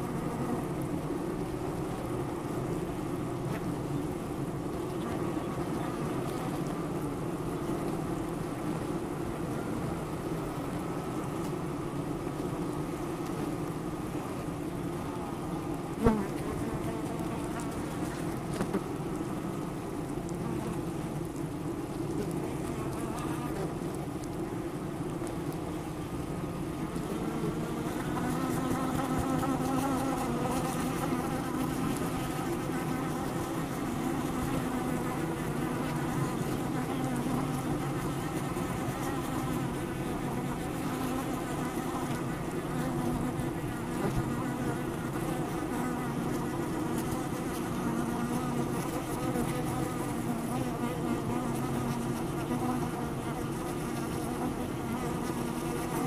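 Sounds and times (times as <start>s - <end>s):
honey bees buzzing: 0.0s - 23.8s, 25.8s - 56.0s.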